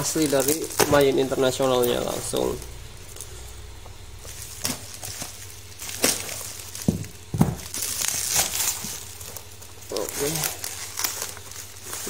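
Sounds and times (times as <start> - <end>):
bubble wrap crackling: 0.0 - 12.0
bubble wrap crinkling: 0.0 - 12.0
cardboard box knocks: 6.8 - 7.7.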